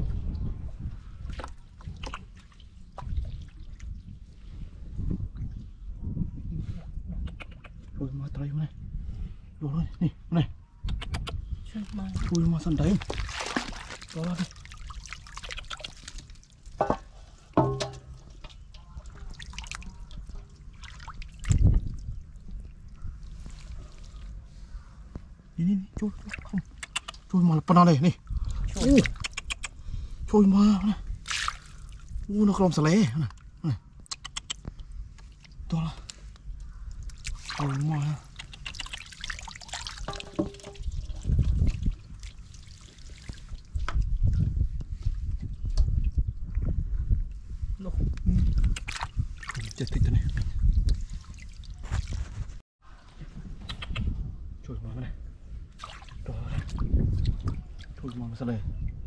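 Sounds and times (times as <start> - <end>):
water splashing and sloshing: 0.1 - 5.7, 11.7 - 27.3, 31.1 - 32.3, 34.6 - 46.6, 48.5 - 53.6, 55.6 - 59.0
water dripping and pouring: 11.8 - 24.3, 37.0 - 44.0
deep water splash: 12.2 - 16.2, 20.7 - 21.8, 31.2 - 32.0, 55.7 - 57.4
basket knocking on metal basin: 16.8 - 18.3, 40.1 - 40.8.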